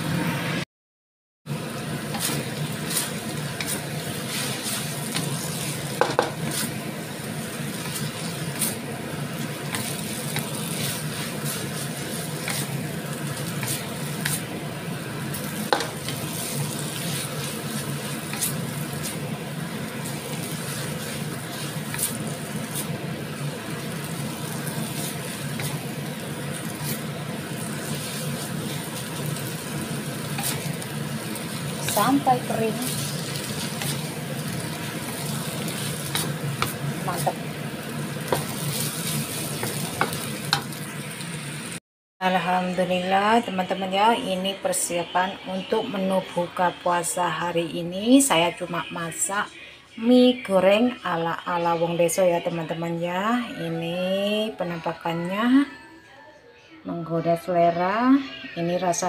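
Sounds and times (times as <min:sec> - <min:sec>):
noodles sizzling in a wok: 0:01.5 - 0:41.8
spatula scraping a wok: 0:02.1 - 0:14.6, 0:15.2 - 0:37.4, 0:38.1 - 0:40.8
spatula knocking against wok: 0:06.0 - 0:06.4.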